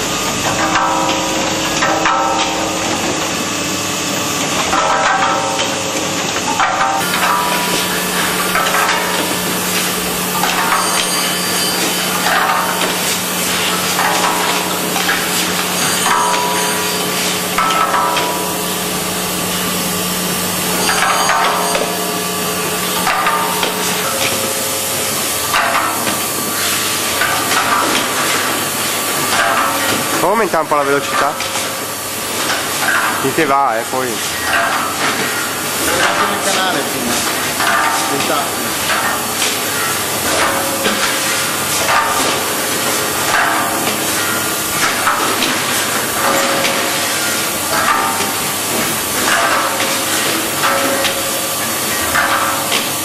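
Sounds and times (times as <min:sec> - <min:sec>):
machine stations clattering: 0:00.0 - 0:53.0.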